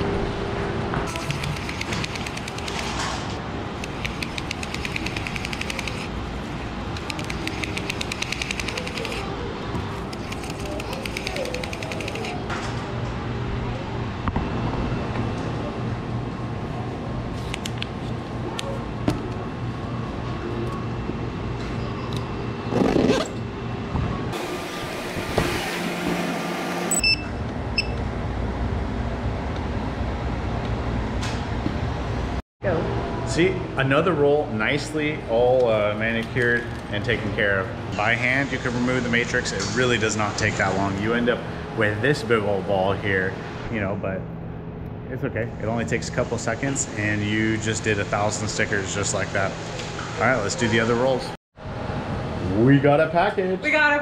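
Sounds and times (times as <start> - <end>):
mechanical room hum: 0.0 - 54.0
short high beeps: 26.9 - 28.0.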